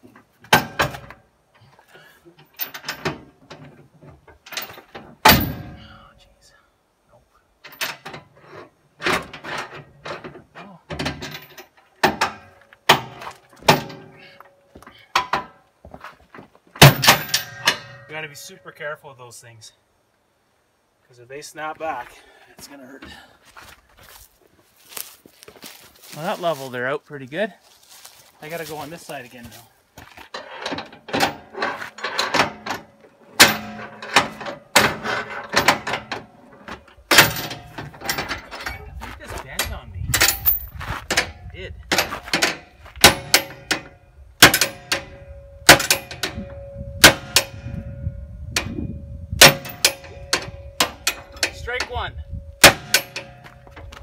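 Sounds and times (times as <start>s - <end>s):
metal clanks ringing: 4.5s - 6.1s, 16.8s - 18.8s, 30.4s - 38.9s, 39.6s - 54.0s.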